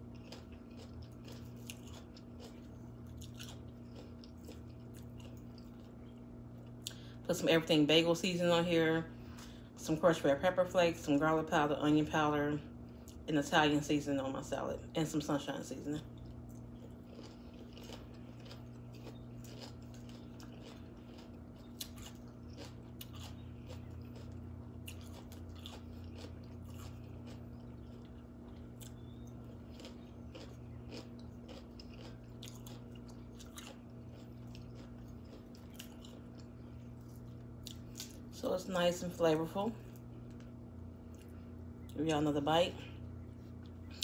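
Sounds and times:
person chewing crunchy salad: 0.0s - 7.2s, 12.7s - 13.3s, 15.3s - 38.4s, 39.0s - 42.0s
steady low hum: 0.0s - 44.0s.

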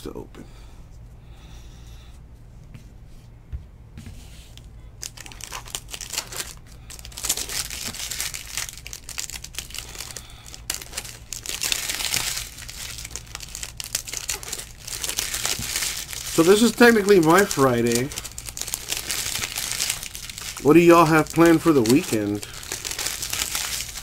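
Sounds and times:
foil wrapper crinkling and tearing: 5.0s - 24.0s.

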